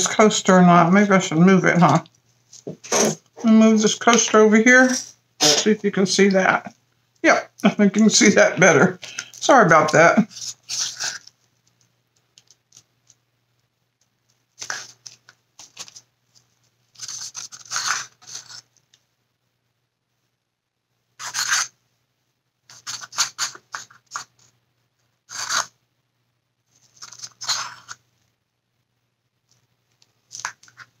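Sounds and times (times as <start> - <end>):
stick scraping plastic cup: 8.7 - 11.3, 17.0 - 18.7, 21.2 - 21.8, 22.7 - 24.4, 25.3 - 25.8, 26.8 - 28.0.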